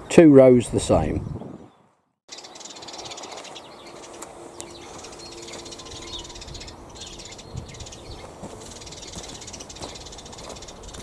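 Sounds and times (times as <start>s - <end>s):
birds chirping: 0.0s - 11.0s
faint two-note hum: 3.8s - 7.6s.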